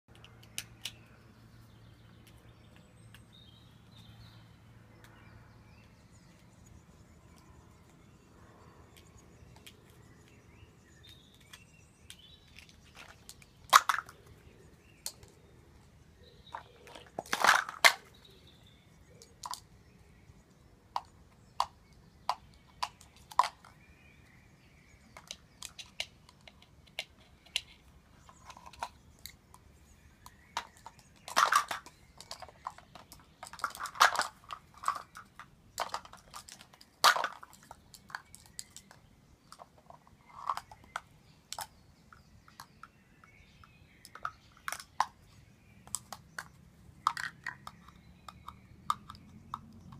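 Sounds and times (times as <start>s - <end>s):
plastic cups clattering: 11.0s - 15.4s, 16.2s - 18.4s, 20.9s - 23.8s, 25.0s - 29.6s, 30.2s - 41.7s, 44.0s - 49.9s.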